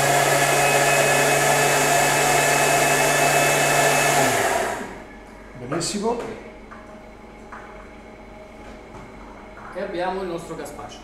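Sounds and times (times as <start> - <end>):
food processor motor running: 0.0 - 5.1.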